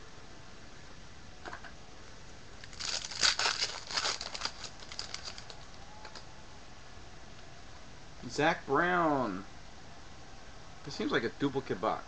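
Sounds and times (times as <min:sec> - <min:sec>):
foil wrapper crinkling and tearing: 0:02.6 - 0:06.2.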